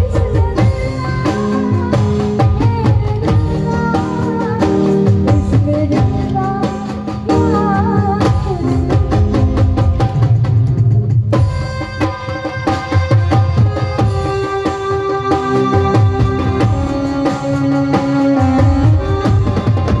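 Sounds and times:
woman singing: 0:00.0 - 0:09.8
keyboard and drums playing: 0:00.0 - 0:20.0.

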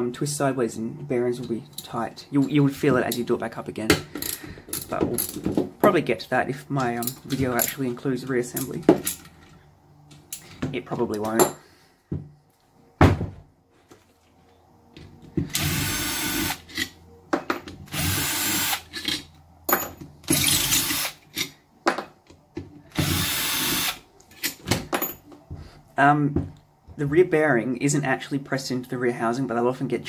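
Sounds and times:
knocks and clicks of handling parts: 0:03.0 - 0:06.0, 0:06.8 - 0:12.4, 0:13.0 - 0:14.0, 0:17.3 - 0:17.8, 0:18.9 - 0:20.5, 0:21.3 - 0:23.2, 0:24.3 - 0:25.6, 0:26.3 - 0:26.6
cordless drill spinning: 0:15.5 - 0:16.6, 0:17.9 - 0:18.9, 0:20.4 - 0:21.2, 0:22.9 - 0:24.0.

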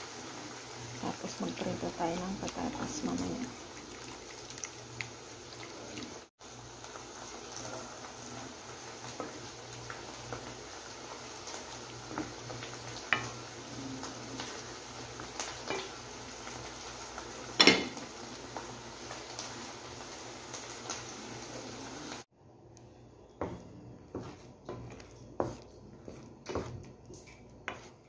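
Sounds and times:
sauce simmering hiss: 0:00.0 - 0:22.9
wooden spoon scraping a pan: 0:23.3 - 0:28.0.

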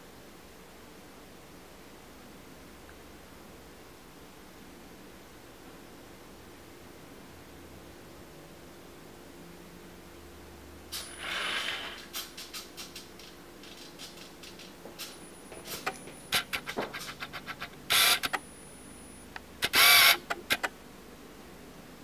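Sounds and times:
toy car motors whirring: 0:11.0 - 0:18.4, 0:19.6 - 0:20.7.

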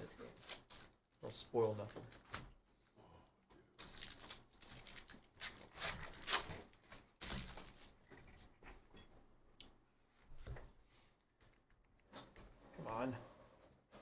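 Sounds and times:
foil wrapper tearing and crinkling: 0:00.3 - 0:01.0, 0:03.8 - 0:07.8.

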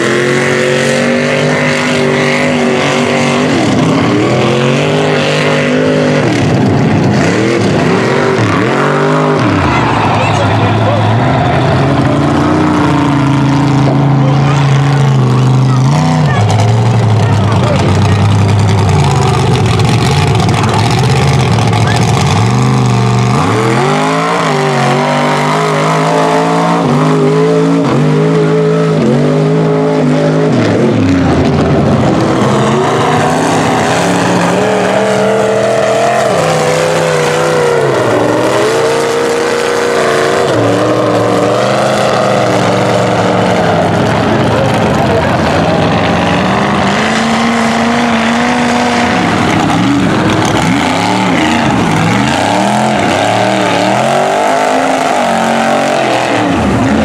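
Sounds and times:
truck engines revving: 0:00.0 - 0:57.0.

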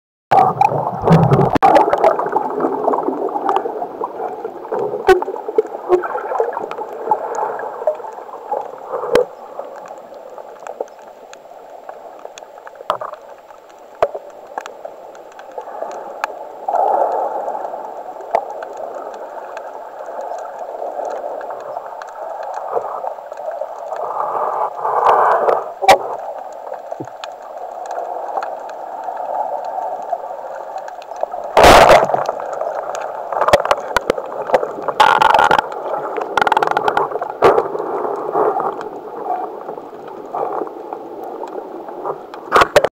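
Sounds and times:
muffled underwater water noise: 0:00.3 - 0:42.9
sharp clicks: 0:31.9 - 0:37.2.

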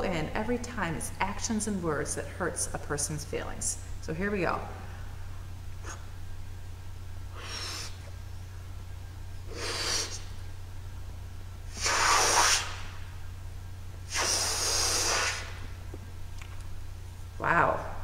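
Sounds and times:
woman blowing up balloon: 0:07.3 - 0:08.1, 0:09.5 - 0:10.4, 0:11.7 - 0:12.9, 0:14.1 - 0:15.6.

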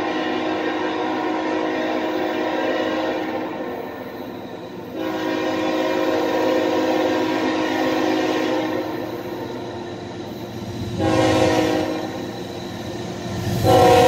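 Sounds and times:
locomotive air horn blasts: 0:00.0 - 0:03.6, 0:04.9 - 0:09.0, 0:11.0 - 0:12.2, 0:13.6 - 0:14.0.

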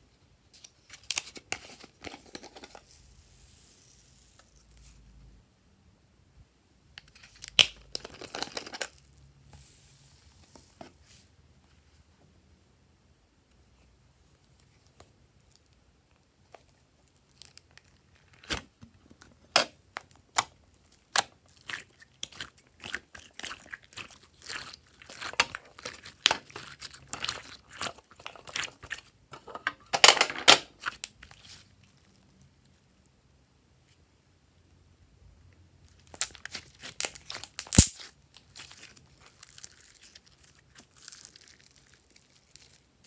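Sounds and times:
slime squelching and popping: 0:20.0 - 0:29.2, 0:35.9 - 0:42.8.

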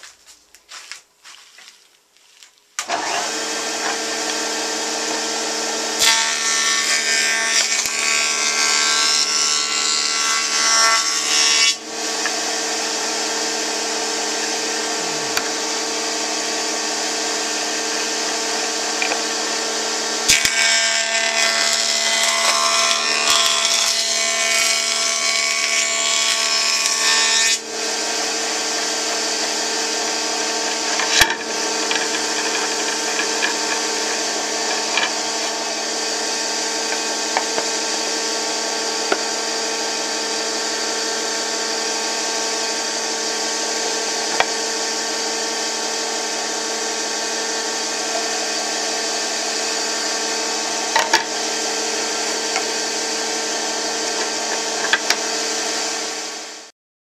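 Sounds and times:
jointer cutting board edge: 0:02.8 - 0:12.8, 0:18.8 - 0:19.5, 0:20.3 - 0:40.1, 0:44.1 - 0:44.8, 0:50.6 - 0:56.2
cutterhead spinning hum: 0:27.9 - 0:39.2.

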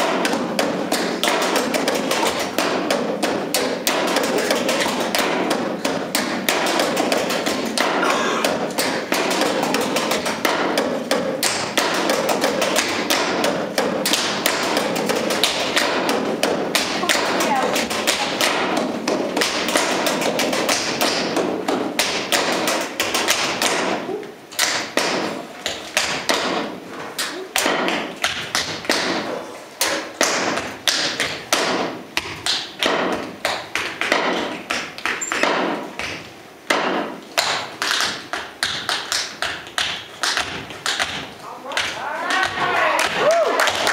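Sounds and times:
tap shoes on stage floor: 0:00.0 - 0:24.0, 0:24.6 - 0:43.9.

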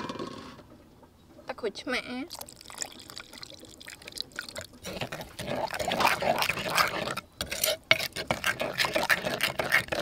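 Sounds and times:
metal spoon scraping in mortar: 0:04.8 - 0:10.0.

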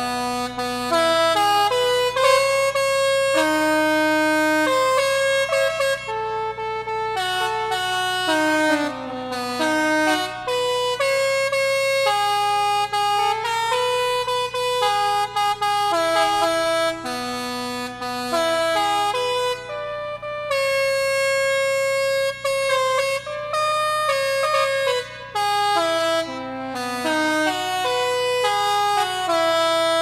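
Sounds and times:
air horns playing polka melody: 0:00.0 - 0:30.0.

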